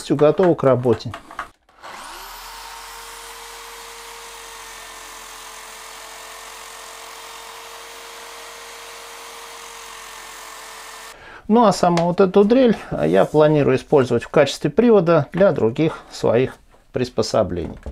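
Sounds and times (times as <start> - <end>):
electric drill whining: 1.7 - 11.2.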